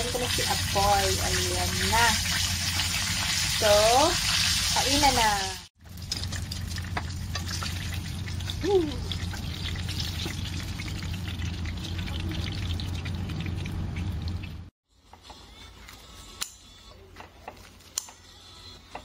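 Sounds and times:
hot oil sizzling in a frying pan: 0.0 - 13.1.

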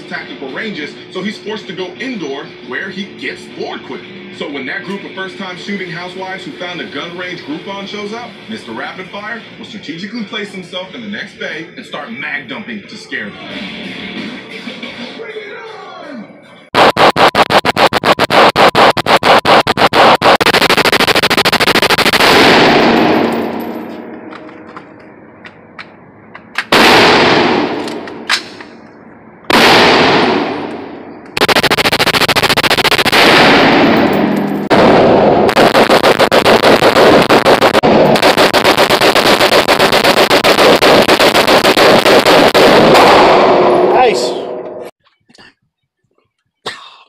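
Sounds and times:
rapid gunfire indoors: 16.8 - 23.6, 26.7 - 28.2, 29.5 - 43.8
single gunshots: 16.8 - 23.6, 26.7 - 28.6, 29.5 - 43.8.

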